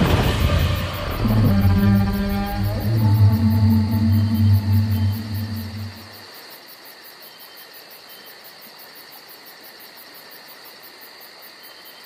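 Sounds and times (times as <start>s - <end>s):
deep low outro music: 0.0s - 6.1s
insects chirping: 0.0s - 12.0s.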